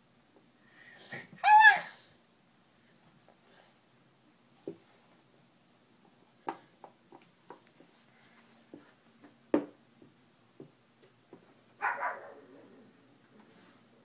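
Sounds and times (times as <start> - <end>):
dog barking: 11.8 - 12.5.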